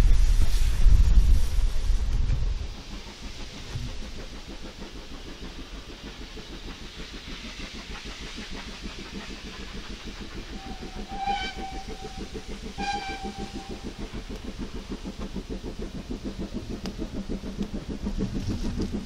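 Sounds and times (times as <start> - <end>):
steam locomotive exhaust beat: 0.0 - 19.0
steam whistle blasts: 10.6 - 14.0.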